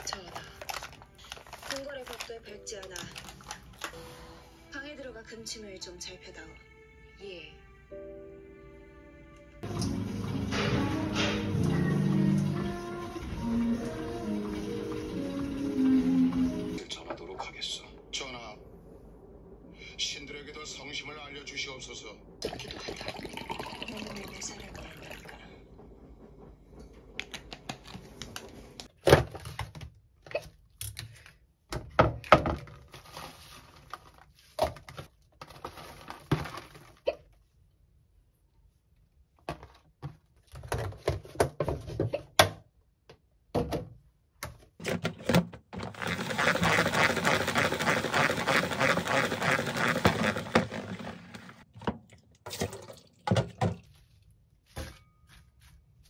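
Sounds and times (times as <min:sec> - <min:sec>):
salad spinner whirring: 0:45.8 - 0:51.6.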